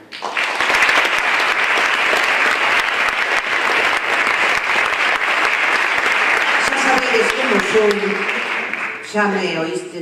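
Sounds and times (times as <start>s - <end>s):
audience applauding: 0.0s - 9.5s.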